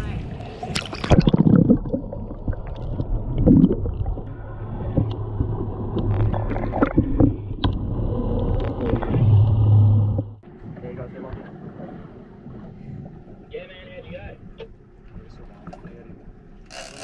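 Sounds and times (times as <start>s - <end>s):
water sloshing and gurgling: 0.0s - 17.0s.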